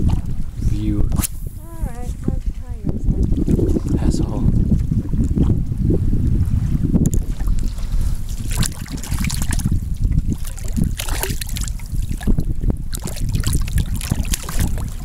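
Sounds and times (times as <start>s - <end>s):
steady low rumble: 0.0s - 15.0s
fish splashing in water: 7.2s - 15.0s.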